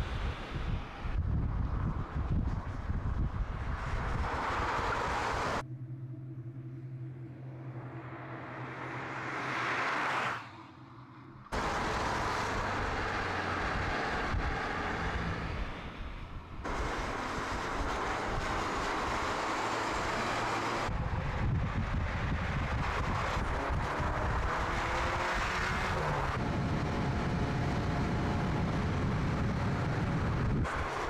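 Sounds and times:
tyre and wind noise: 0:00.0 - 0:05.6, 0:20.2 - 0:31.0
car engine driving at speed: 0:00.0 - 0:31.0.

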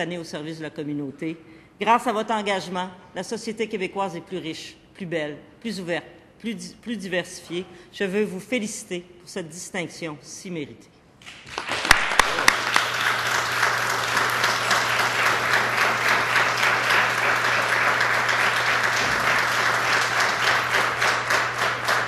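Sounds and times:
many people clapping: 0:11.2 - 0:22.0.

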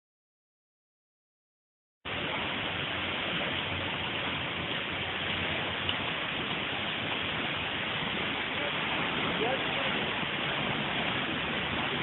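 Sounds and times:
water jet rushing and splashing: 0:02.1 - 0:12.0.

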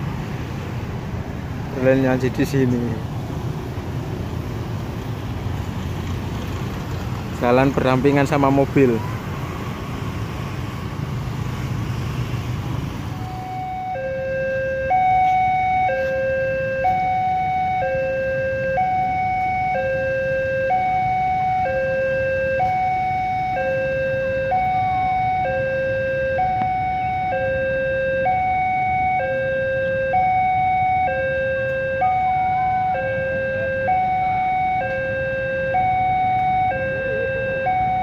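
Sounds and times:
level crossing two-tone alarm: 0:13.2 - 0:38.0.

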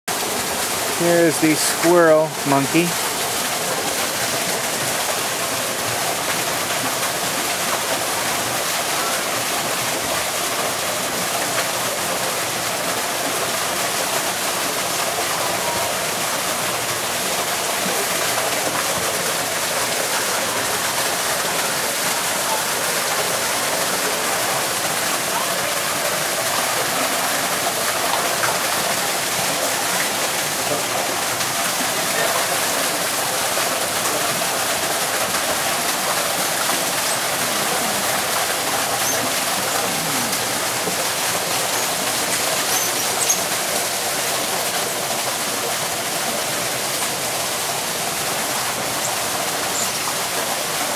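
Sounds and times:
running water rushing: 0:00.1 - 0:50.9
faint voices: 0:17.5 - 0:43.6.

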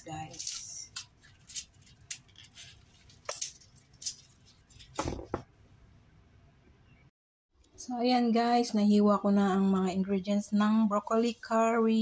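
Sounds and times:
vegetables tapping and knocking: 0:04.8 - 0:05.5.

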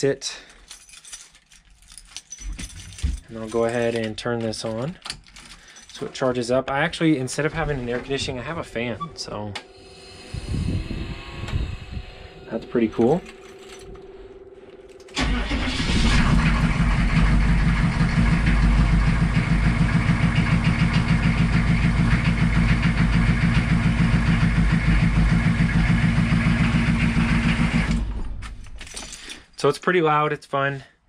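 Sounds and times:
diesel truck engine idling: 0:15.2 - 0:27.8.

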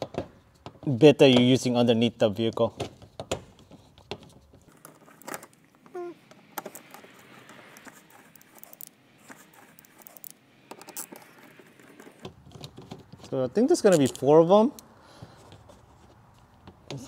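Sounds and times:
screwdriver clicks and scrapes: 0:06.5 - 0:12.2.

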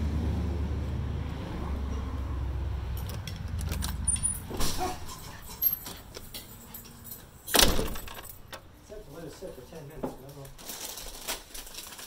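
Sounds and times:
door shutting and locking: 0:03.1 - 0:05.2, 0:07.5 - 0:08.6.

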